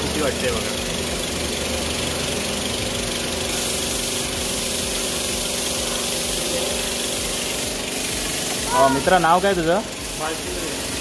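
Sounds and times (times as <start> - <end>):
machine motor humming: 0.0 - 11.0
hiss: 3.0 - 11.0.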